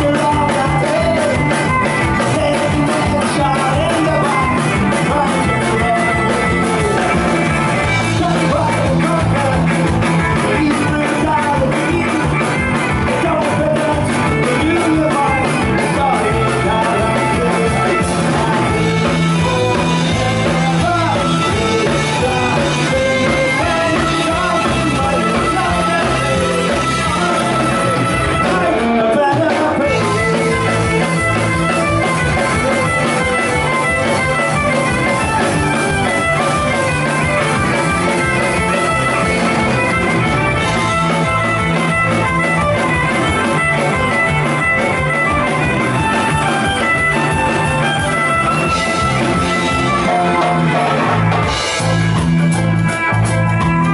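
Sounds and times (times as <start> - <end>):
man singing lead vocal: 0.0 - 34.5, 48.7 - 51.2
bass guitar: 0.0 - 53.9
drum kit driving beat: 0.0 - 53.9
fiddle: 12.4 - 53.9.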